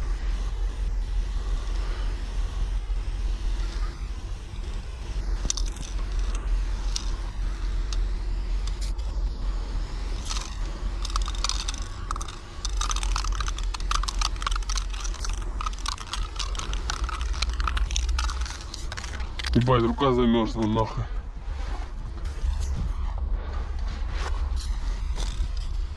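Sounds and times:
steady low rumble: 0.0 - 25.9
small rapid clicks: 5.4 - 7.2, 10.2 - 19.7
spray paint can hissing: 5.4 - 9.1, 10.0 - 19.8.

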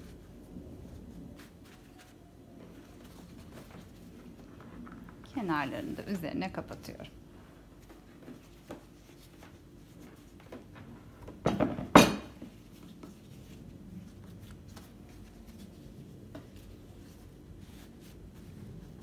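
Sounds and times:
pastry sheets rustling: 0.0 - 11.4, 12.2 - 19.0.

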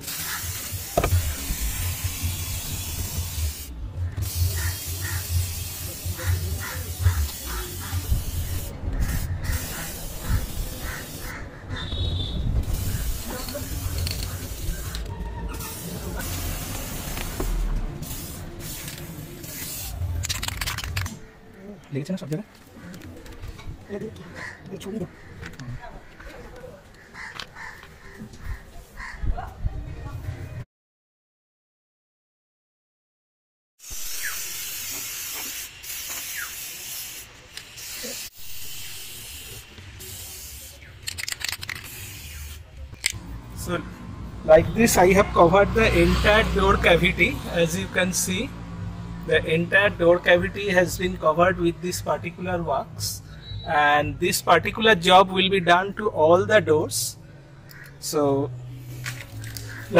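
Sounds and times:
aerosol can spraying hiss: 0.0 - 11.4, 12.6 - 20.1, 33.8 - 40.9, 41.7 - 42.6.

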